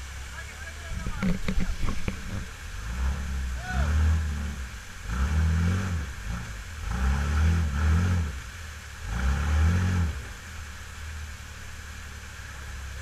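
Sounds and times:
rushing water and spray: 0.0s - 13.0s
engine revving hard: 2.7s - 10.5s.

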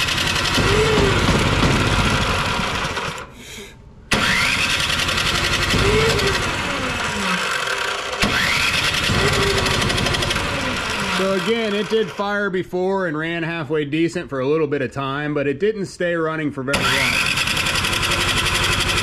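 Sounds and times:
electric starter cranking engine: 0.0s - 3.4s, 4.1s - 12.4s, 16.7s - 19.0s.

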